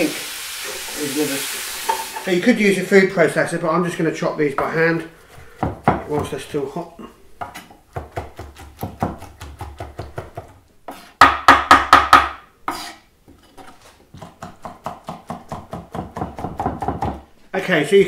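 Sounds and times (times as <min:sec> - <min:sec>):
knife chopping on wooden board: 0:07.4 - 0:12.9, 0:13.6 - 0:17.2.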